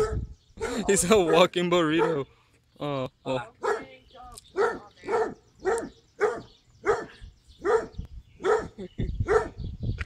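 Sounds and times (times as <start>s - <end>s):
dog barking: 0.0s - 2.2s, 3.6s - 3.9s, 4.5s - 9.6s.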